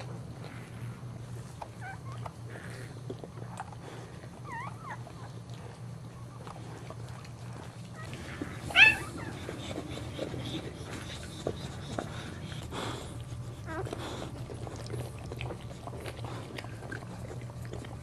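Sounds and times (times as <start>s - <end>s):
steady low hum: 0.0s - 18.0s
puppy crying loudly: 8.0s - 10.0s
puppy squeaking: 8.0s - 10.2s.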